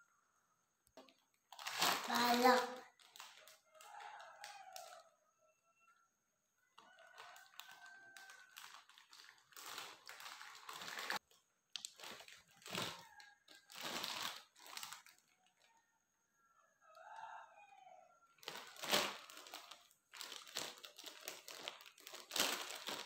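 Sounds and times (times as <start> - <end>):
plastic packaging crinkling: 1.1 - 5.0, 6.8 - 15.4, 18.4 - 23.0.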